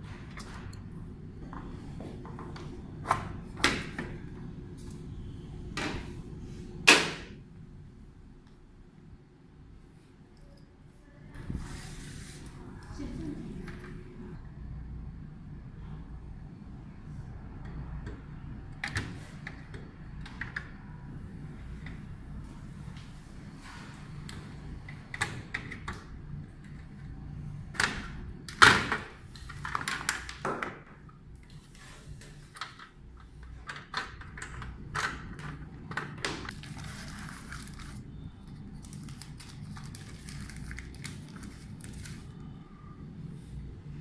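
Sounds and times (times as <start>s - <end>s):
plastic bag rustling: 36.5s - 38.1s, 38.7s - 42.4s.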